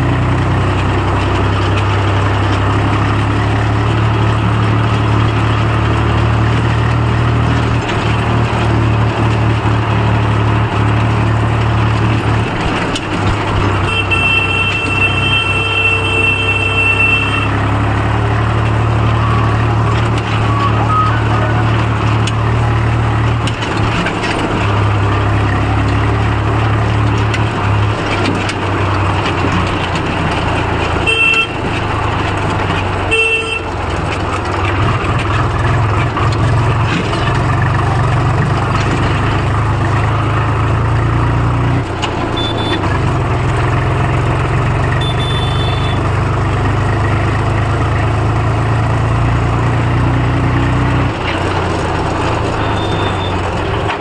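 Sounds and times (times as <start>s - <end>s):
tractor diesel engine running: 0.0s - 54.0s
high horn-like tone: 13.8s - 17.7s, 19.1s - 21.7s, 31.0s - 31.6s, 33.1s - 33.7s, 45.0s - 46.0s.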